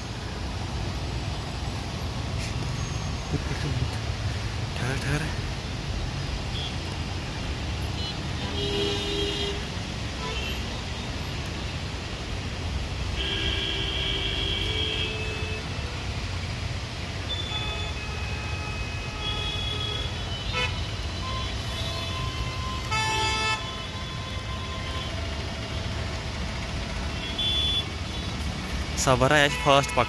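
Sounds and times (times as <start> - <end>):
road traffic rumbling: 0.0 - 30.0
car horns honking: 7.9 - 11.0, 13.2 - 16.0, 17.3 - 25.2, 27.0 - 28.4, 29.2 - 30.0.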